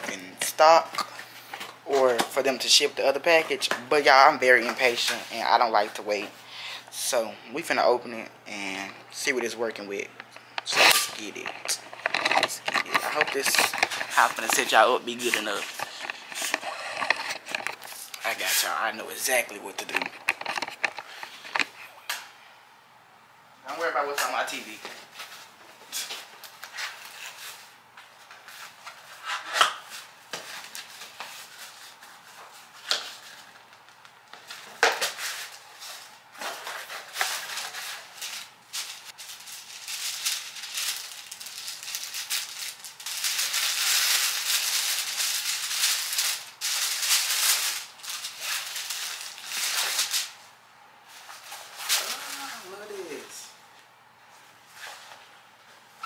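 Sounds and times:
packaging crinkling: 0:10.4 - 0:18.6, 0:19.2 - 0:21.8, 0:34.4 - 0:50.4.

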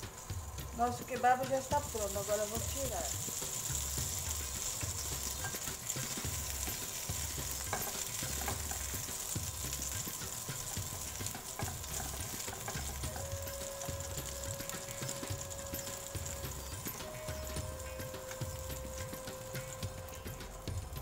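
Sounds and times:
kebabs sizzling in oil: 0:00.0 - 0:21.0
spatula clicking against pan: 0:03.2 - 0:13.2.

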